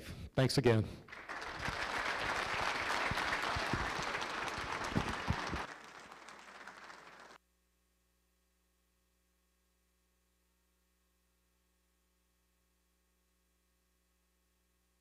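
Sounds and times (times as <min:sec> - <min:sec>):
audience applauding: 0:01.1 - 0:07.4.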